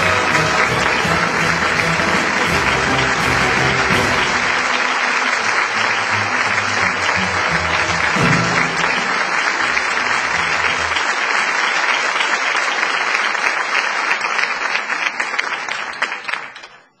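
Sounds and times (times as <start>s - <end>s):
low closing music: 0.0s - 11.0s
audience applauding: 0.0s - 17.0s.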